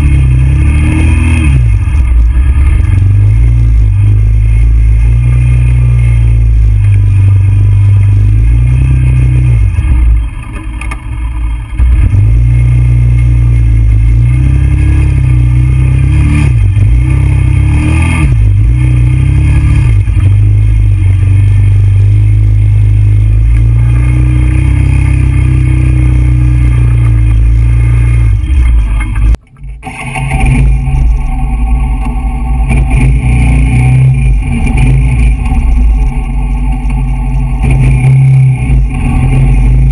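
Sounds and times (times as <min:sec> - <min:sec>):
quad bike engine running: 0:00.0 - 0:39.9.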